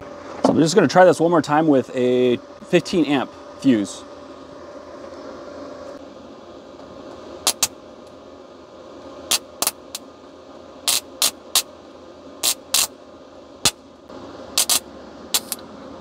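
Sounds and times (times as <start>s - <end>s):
steady low hum: 0.0s - 16.0s
sharp electrical arcing snaps: 7.4s - 7.8s, 9.3s - 10.0s, 10.9s - 11.7s, 12.4s - 12.9s, 14.6s - 15.6s.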